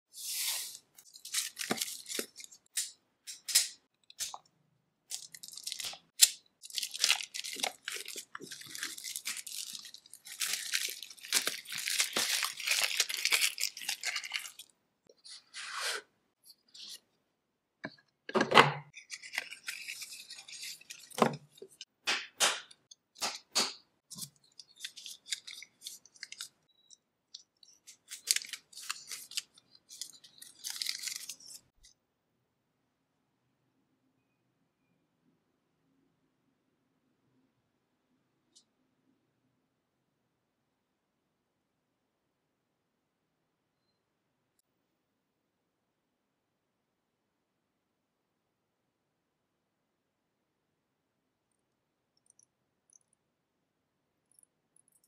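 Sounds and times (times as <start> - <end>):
plastic wrapping crinkling and tearing: 1.0 - 2.8, 5.1 - 14.7, 19.0 - 21.8, 24.1 - 26.6, 27.6 - 31.8.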